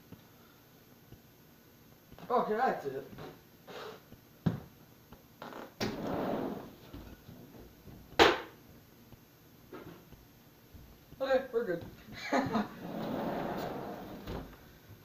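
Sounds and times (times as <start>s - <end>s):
sliding glass door rolling open: 5.8s - 6.8s, 12.7s - 14.5s
footsteps: 5.9s - 8.2s, 9.1s - 14.6s
loud sharp knock: 8.2s - 8.6s.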